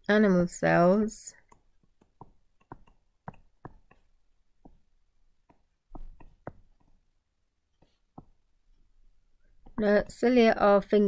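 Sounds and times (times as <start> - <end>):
stylus tapping on tablet: 1.4 - 7.0, 7.8 - 8.5
knock: 5.9 - 6.9.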